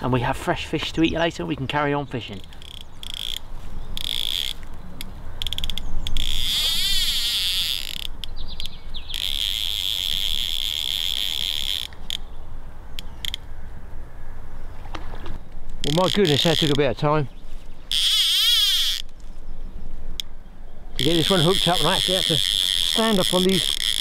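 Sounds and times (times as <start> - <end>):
fly reel drag buzzing: 2.4 - 4.7, 5.4 - 8.4, 9.1 - 12.3, 15.9 - 16.8, 17.9 - 19.1, 20.9 - 24.0.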